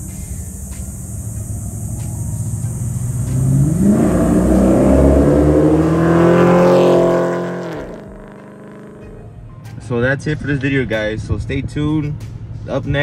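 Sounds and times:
truck engine accelerating past: 1.8s - 9.4s.

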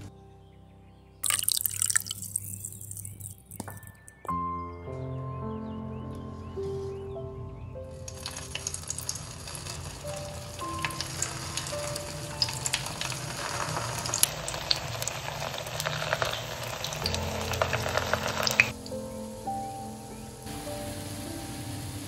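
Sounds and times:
patties sizzling in hot oil: 8.1s - 18.8s.

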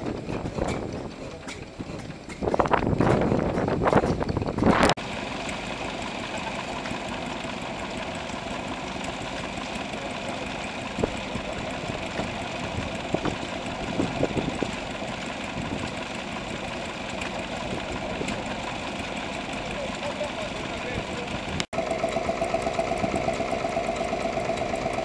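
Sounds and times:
small stationary engine running: 5.0s - 25.0s.

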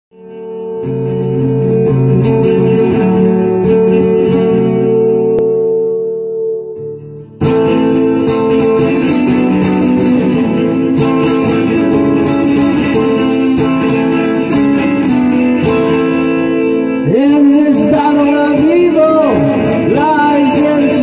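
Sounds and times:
guitar-led music with steady beat: 0.1s - 21.0s.

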